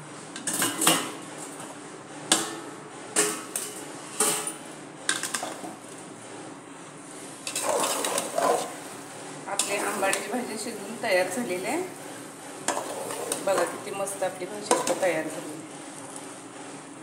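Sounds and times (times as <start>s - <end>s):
steel kitchenware clanking: 0.4s - 1.6s, 2.3s - 6.0s, 7.4s - 8.9s, 9.5s - 11.9s, 12.6s - 15.6s.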